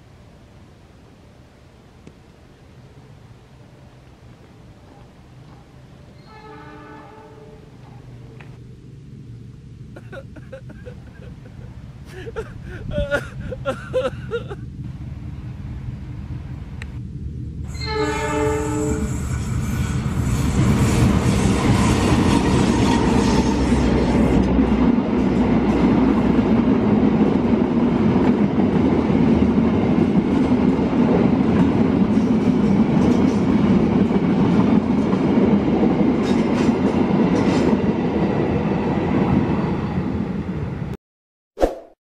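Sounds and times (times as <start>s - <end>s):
locomotive engine rumble: 7.5s - 27.6s
train wheels on rails: 13.2s - 40.1s
wheels clicking over rail joints: 29.3s - 37.8s.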